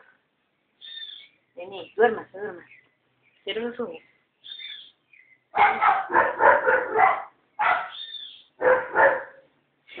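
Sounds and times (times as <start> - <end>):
dog barking loudly: 5.6 - 8.0, 8.6 - 9.5.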